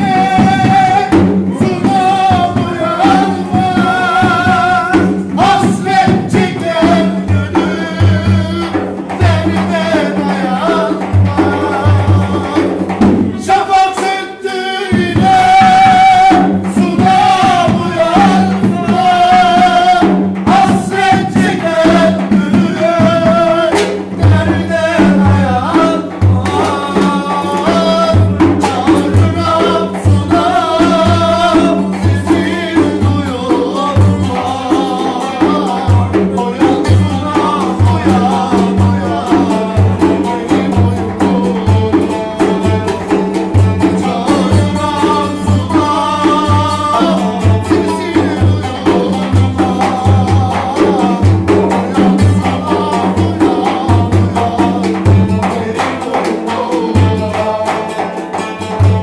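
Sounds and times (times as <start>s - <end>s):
frame drum beat: 0.0s - 59.0s
man singing: 0.0s - 59.0s
plucked lute: 22.7s - 59.0s.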